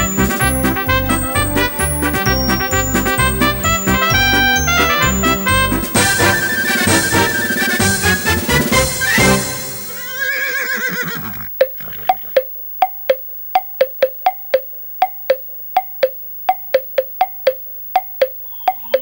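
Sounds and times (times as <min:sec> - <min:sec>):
music: 0:00.0 - 0:10.1
horse whinny: 0:09.0 - 0:12.4.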